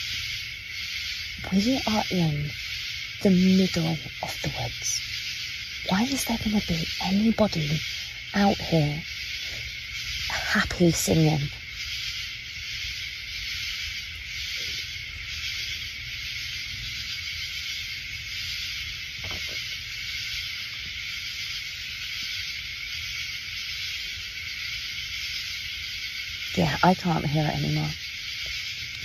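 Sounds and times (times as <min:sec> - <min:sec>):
night insects hissing: 0:00.0 - 0:29.0.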